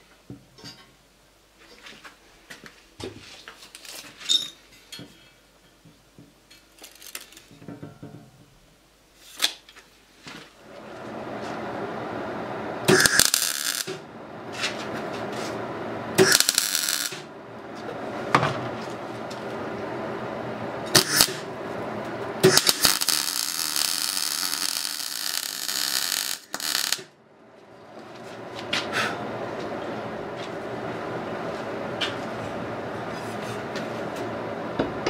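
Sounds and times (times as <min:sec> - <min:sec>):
steady low hum: 0:10.6 - 0:35.0
welder arc on sheet steel: 0:12.8 - 0:14.1, 0:15.4 - 0:17.3, 0:20.8 - 0:21.5, 0:22.4 - 0:27.1.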